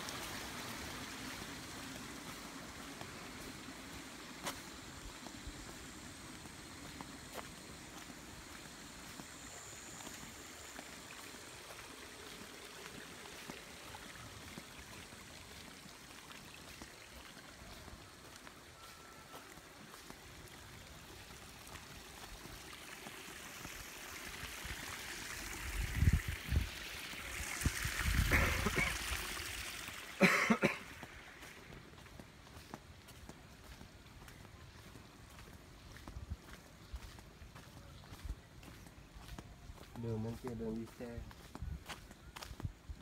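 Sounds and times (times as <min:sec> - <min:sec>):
water trickling: 0:00.0 - 0:37.2
person coughing: 0:28.3 - 0:29.0, 0:30.2 - 0:30.9.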